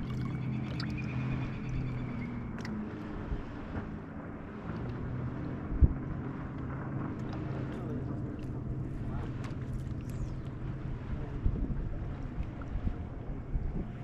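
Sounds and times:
boat motor humming: 0:00.0 - 0:14.0.

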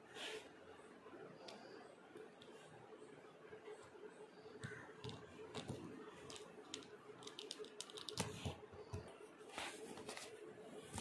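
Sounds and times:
plastic toy pieces clicking: 0:05.0 - 0:08.3.

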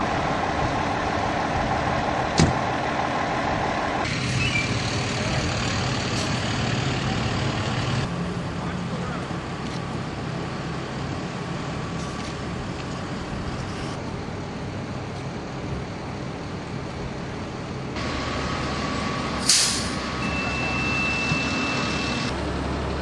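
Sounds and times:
vehicle engines idling: 0:00.0 - 0:23.0
steady high tone: 0:18.0 - 0:22.3
air brake hiss: 0:19.4 - 0:20.1.

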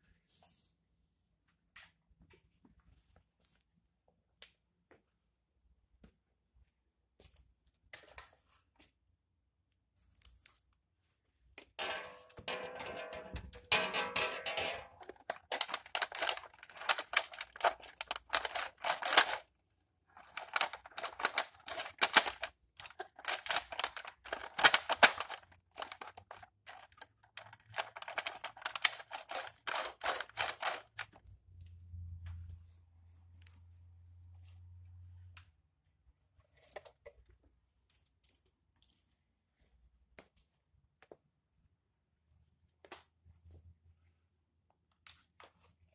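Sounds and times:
model train wheels clattering: 0:12.5 - 0:19.4, 0:20.2 - 0:30.9.

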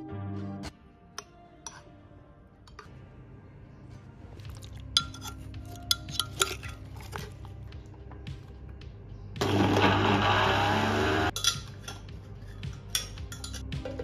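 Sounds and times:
utensil clinking on glass jar: 0:04.8 - 0:07.4, 0:11.3 - 0:13.7.

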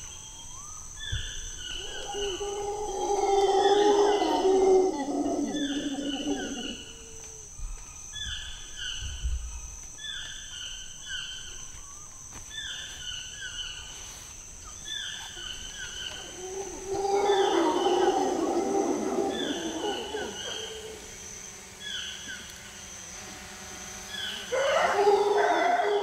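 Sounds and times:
high insect drone: 0:00.0 - 0:26.0
howler monkey howling: 0:01.5 - 0:07.5, 0:15.3 - 0:21.4, 0:24.3 - 0:26.0.

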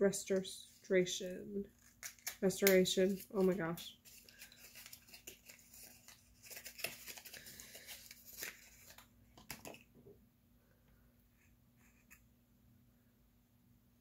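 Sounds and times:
packaging rustling and tearing: 0:01.7 - 0:09.1.

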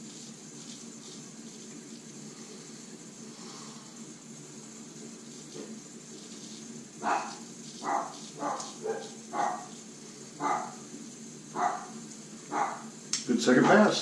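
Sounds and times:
dog barking: 0:07.0 - 0:09.7, 0:10.4 - 0:10.8, 0:11.5 - 0:12.9.

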